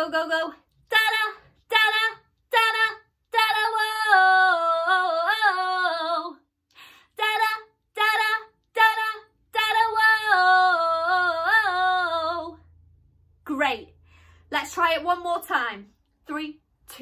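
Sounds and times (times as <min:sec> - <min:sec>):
woman singing unaccompanied: 0:00.0 - 0:06.4, 0:07.2 - 0:12.6.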